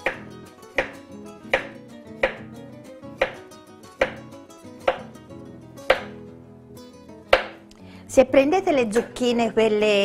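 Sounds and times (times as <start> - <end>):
knife knocking on cutting board: 0.0 - 1.0, 1.6 - 2.4, 3.2 - 3.4, 4.0 - 4.3, 4.9 - 5.1, 5.9 - 6.2, 7.3 - 7.6.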